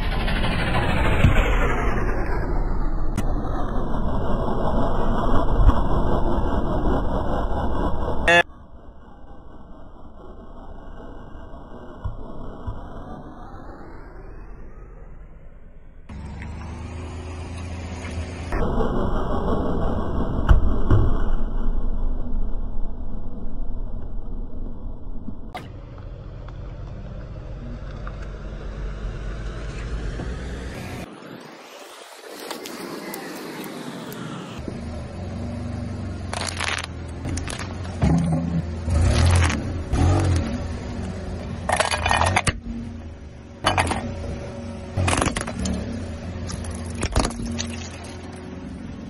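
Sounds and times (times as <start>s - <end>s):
car rolling on wet asphalt: 25.7s - 30.6s, 31.7s - 49.0s
tyre crushing bubble wrap: 36.3s - 38.3s, 39.1s - 39.6s.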